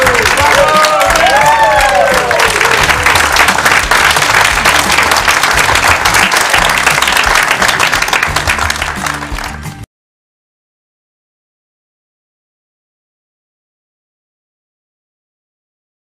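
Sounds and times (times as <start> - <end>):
background music: 0.0 - 9.9
crowd applauding: 0.0 - 9.9.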